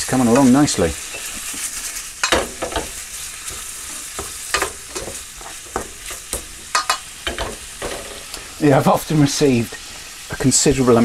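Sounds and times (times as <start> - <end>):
meat and vegetables sizzling in pan: 0.0 - 11.0
utensil scraping and knocking pan: 0.3 - 8.3.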